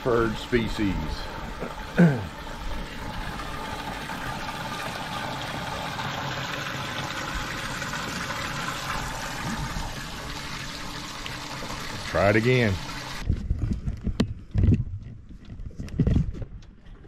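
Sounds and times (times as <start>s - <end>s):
water splashing and bubbling: 0.0s - 13.3s
pump pouring water: 0.0s - 13.4s.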